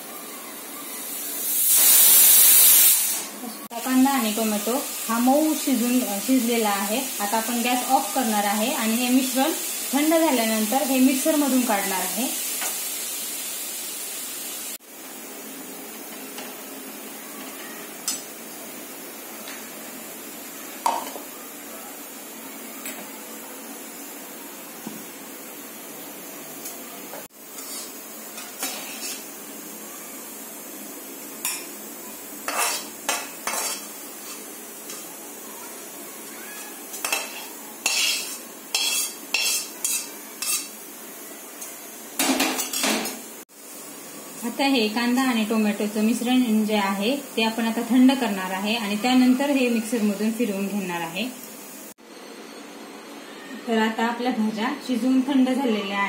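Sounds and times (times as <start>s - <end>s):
metal cookware clinking: 42.2s - 43.2s.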